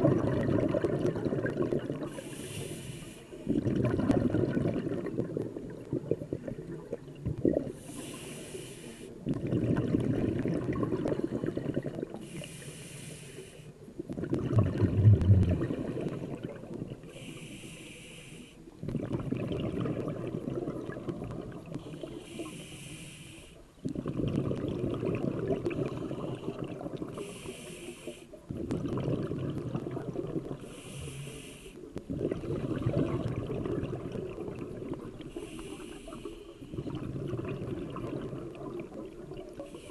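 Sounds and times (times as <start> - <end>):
exhaled bubbles rushing: 0.0 - 2.2, 3.5 - 7.8, 9.2 - 12.2, 14.1 - 17.1, 18.8 - 22.0, 23.8 - 27.2, 28.5 - 30.7, 32.1 - 35.3, 36.7 - 39.7
regulator inhale hiss: 2.1 - 3.6, 7.8 - 9.2, 12.2 - 13.8, 17.0 - 18.8, 21.8 - 23.7, 27.2 - 28.5, 30.6 - 32.0, 35.2 - 36.8, 39.6 - 39.9.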